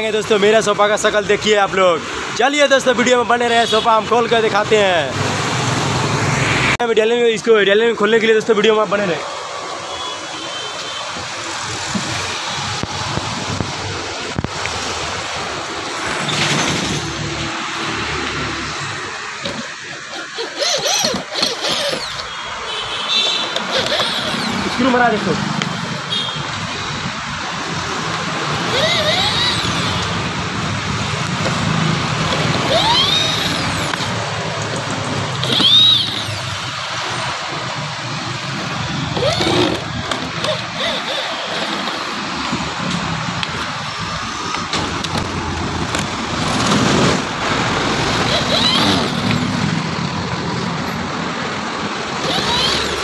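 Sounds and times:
drill-driver motor whine: 19.4s - 22.4s, 23.2s - 24.8s, 28.5s - 30.1s, 32.2s - 34.2s, 35.4s - 36.7s, 39.0s - 42.1s, 48.1s - 49.6s, 52.2s - 53.0s.

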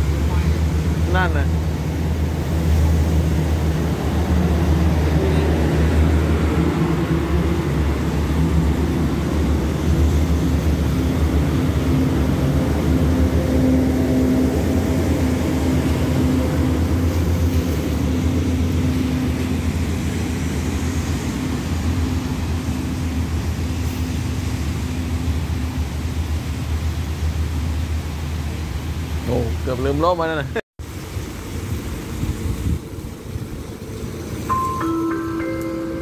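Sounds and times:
diesel train engine drone: 0.0s - 29.8s, 30.8s - 36.0s
wheels rumbling on rails: 0.0s - 36.0s.

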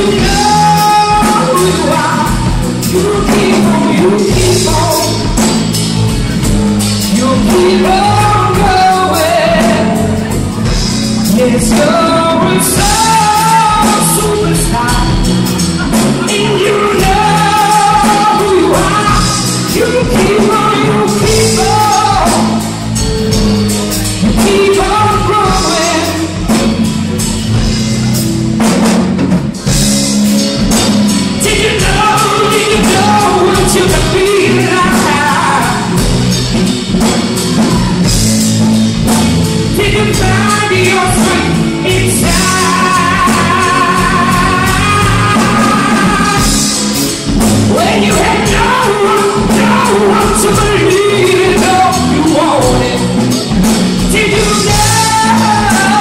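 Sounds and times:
woman singing lead vocal: 0.0s - 5.6s, 7.1s - 22.9s, 24.2s - 26.7s, 31.4s - 36.2s, 39.7s - 47.0s, 47.7s - 56.0s
soul band playing: 0.0s - 56.0s.

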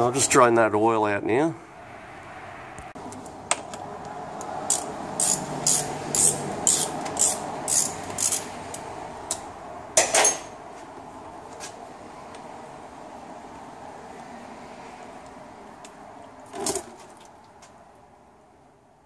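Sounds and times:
hand ratchet clicking: 4.6s - 9.4s.

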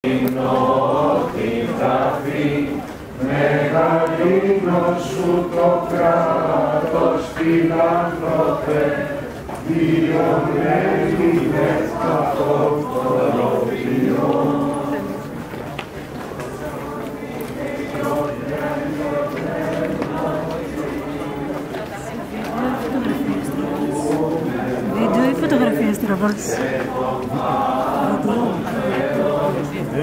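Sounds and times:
congregation singing a hymn: 0.0s - 30.0s.

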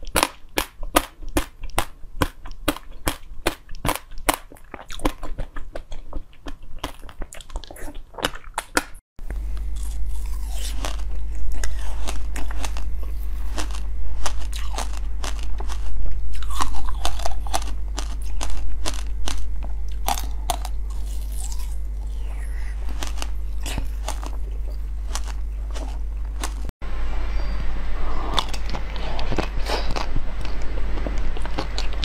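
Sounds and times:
wet mouth sounds: 0.0s - 9.0s, 9.8s - 26.7s
crunchy chewing: 0.0s - 26.7s, 28.2s - 32.0s.

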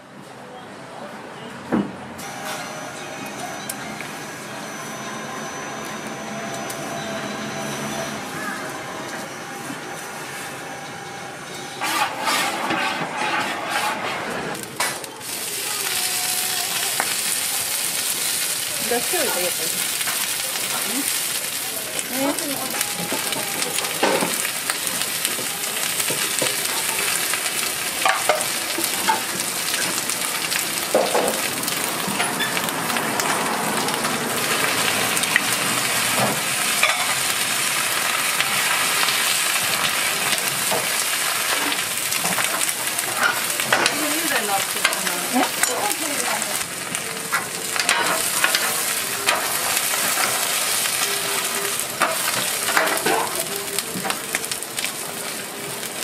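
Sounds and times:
pancake sizzling on griddle: 11.8s - 56.0s.

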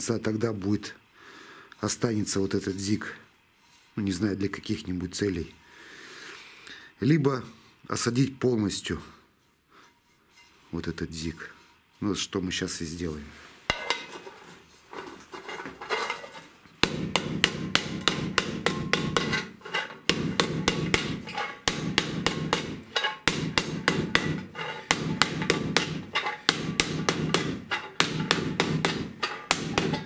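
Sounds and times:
hammer tapping on metal: 16.8s - 30.0s.

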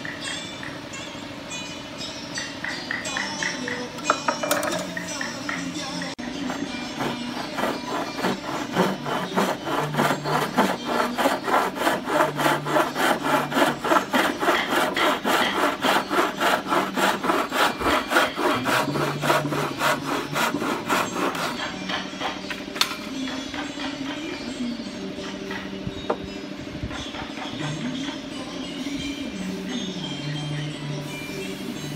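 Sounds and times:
bow saw cutting wood: 6.4s - 21.8s.

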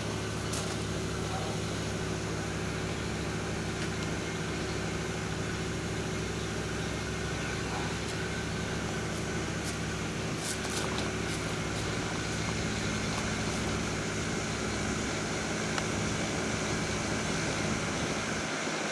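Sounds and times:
machine humming: 0.0s - 18.9s.

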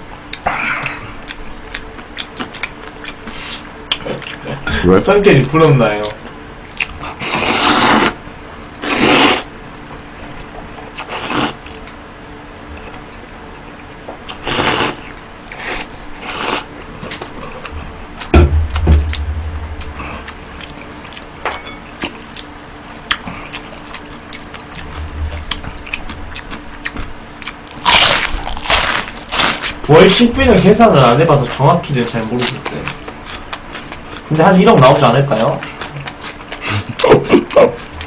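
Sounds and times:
chewing: 0.2s - 4.6s, 6.0s - 8.1s, 12.7s - 18.3s, 19.1s - 29.8s, 32.1s - 38.0s
slurping noodles: 7.2s - 8.2s, 8.8s - 9.5s, 14.4s - 15.0s.

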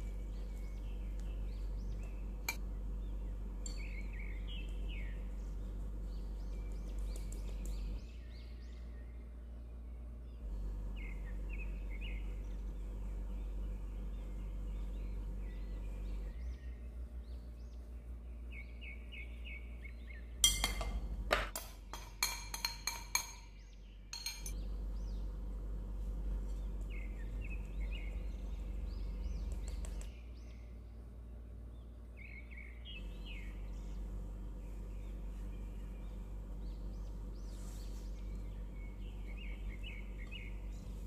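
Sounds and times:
small birds chirping: 0.0s - 41.0s
steady low hum: 0.0s - 41.0s
utensils clinking on glass bowl: 20.4s - 23.5s, 24.1s - 24.6s.

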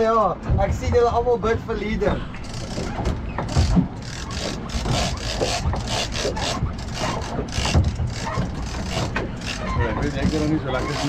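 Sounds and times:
fishing reel cranked rasping: 3.5s - 11.0s.

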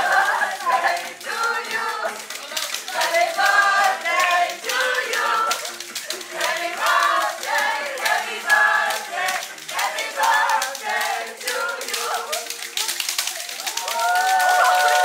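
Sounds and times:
group of people singing: 0.0s - 12.5s
hand claps: 0.0s - 15.0s.

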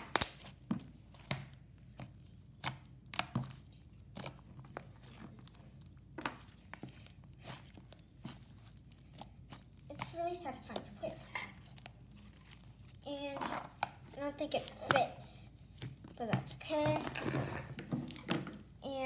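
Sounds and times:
slime clicking and popping: 0.0s - 0.6s.

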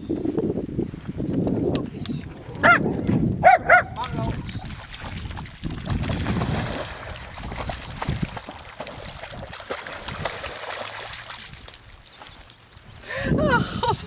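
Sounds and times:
dogs splashing through water: 3.8s - 12.7s.

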